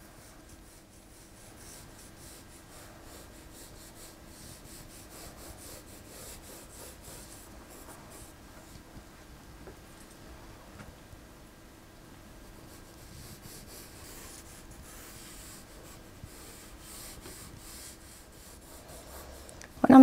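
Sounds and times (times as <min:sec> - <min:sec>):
pencil scratching on paper: 0:00.0 - 0:08.4, 0:12.5 - 0:19.5.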